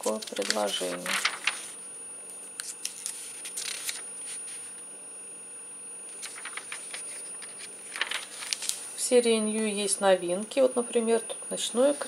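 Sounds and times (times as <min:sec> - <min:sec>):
paper pages rustling: 0:00.0 - 0:01.8, 0:02.6 - 0:04.7, 0:06.1 - 0:08.9.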